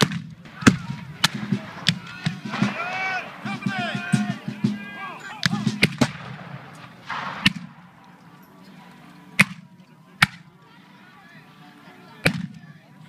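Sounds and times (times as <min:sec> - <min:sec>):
musket shots: 0:00.0 - 0:04.5, 0:05.4 - 0:08.0.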